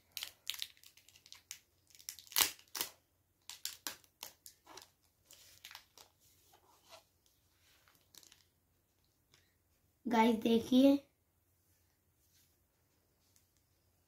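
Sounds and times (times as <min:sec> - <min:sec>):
plastic film crinkling: 0:00.0 - 0:06.2, 0:07.8 - 0:08.5.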